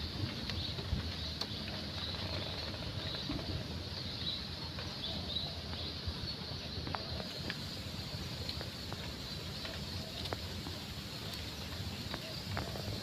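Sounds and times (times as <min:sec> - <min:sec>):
wind rumble on microphone: 0:00.0 - 0:07.4.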